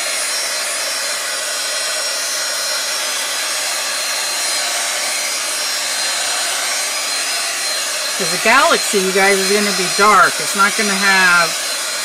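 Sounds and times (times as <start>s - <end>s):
hot-air tool whining: 0.0s - 12.0s.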